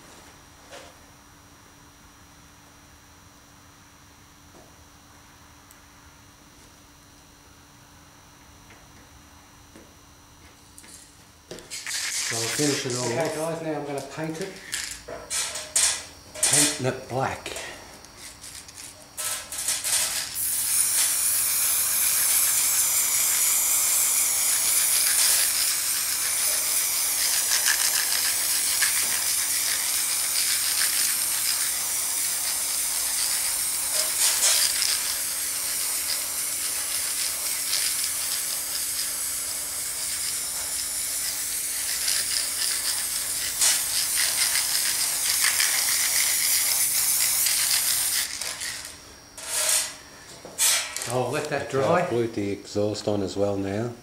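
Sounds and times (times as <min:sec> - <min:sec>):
spray paint can hissing: 0:11.6 - 0:13.5, 0:18.4 - 0:49.0.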